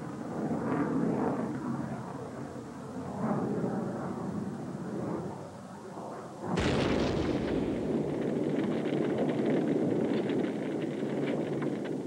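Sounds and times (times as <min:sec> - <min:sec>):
rocket motor roaring and crackling: 0:06.5 - 0:12.0
launch blast: 0:06.6 - 0:08.7.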